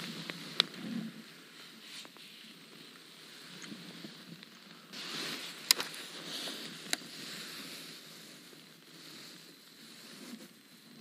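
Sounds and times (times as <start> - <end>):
fishing reel rustling: 4.4 - 8.4.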